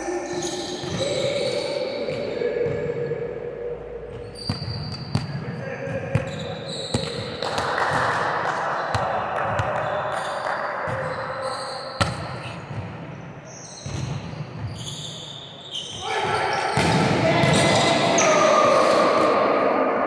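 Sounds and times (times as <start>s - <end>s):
volleyballs struck and bouncing: 4.1s - 11.4s, 12.0s - 13.1s, 16.8s - 18.2s.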